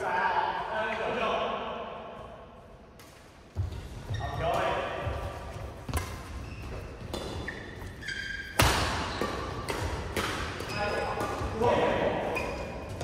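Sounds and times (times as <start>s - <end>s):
shoes squeaking on court: 3.1s - 13.0s
rackets striking shuttlecock: 5.8s - 7.6s, 8.4s - 13.0s.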